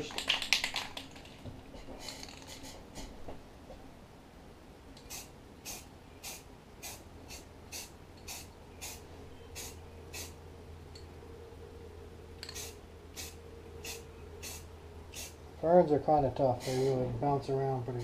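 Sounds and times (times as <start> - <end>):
spray paint can hissing: 5.0 - 9.0, 9.6 - 10.4, 12.4 - 15.4.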